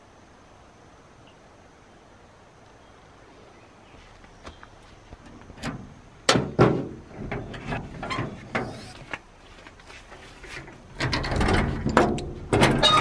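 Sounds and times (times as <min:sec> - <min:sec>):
knocks on metal body: 0:06.3 - 0:07.5.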